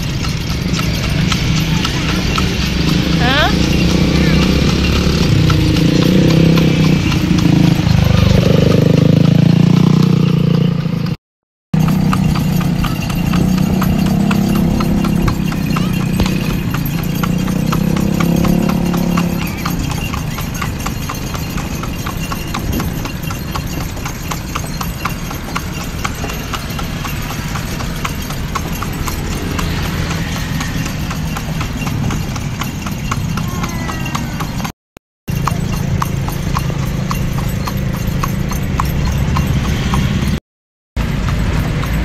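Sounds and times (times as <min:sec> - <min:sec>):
low engine hum: 0:00.0 - 0:10.2
horse hooves clip-clopping on asphalt: 0:00.0 - 0:11.1, 0:11.8 - 0:34.7, 0:35.3 - 0:40.4, 0:41.0 - 0:42.0.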